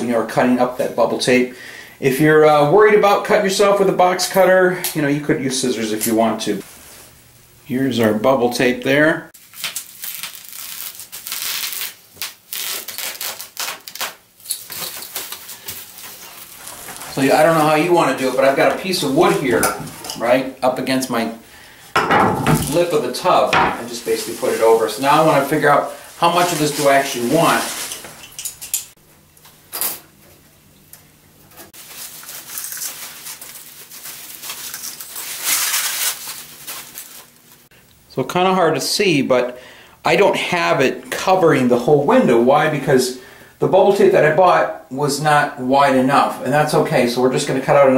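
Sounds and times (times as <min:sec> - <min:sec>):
bubble wrap rustling: 0:09.4 - 0:20.4, 0:22.6 - 0:29.0, 0:31.7 - 0:37.7.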